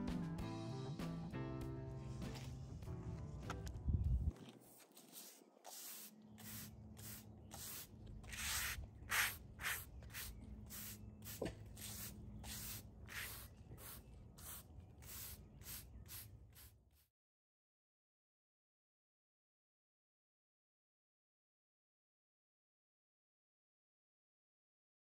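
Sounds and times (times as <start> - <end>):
broom sweeping concrete: 4.6 - 17.1.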